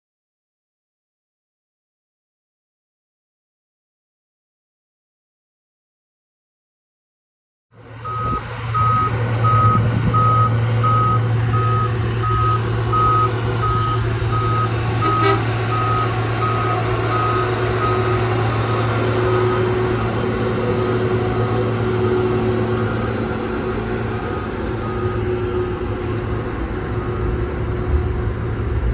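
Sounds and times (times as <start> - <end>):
diesel engine drone: 7.7 - 28.9
backup alarm beeping: 8.0 - 19.8, 24.3 - 25.4.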